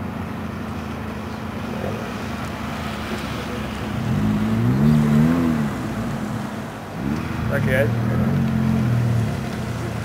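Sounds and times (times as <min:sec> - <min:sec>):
car engines running: 0:00.0 - 0:10.0
engine revving: 0:03.9 - 0:09.9.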